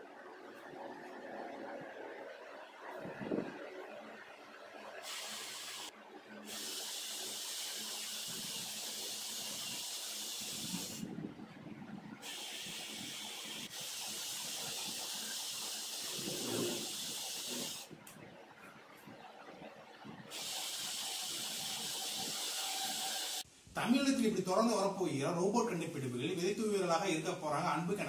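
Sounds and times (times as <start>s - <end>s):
robot drive motors hissing: 6.5s - 11.0s, 12.2s - 17.9s, 20.3s - 23.4s.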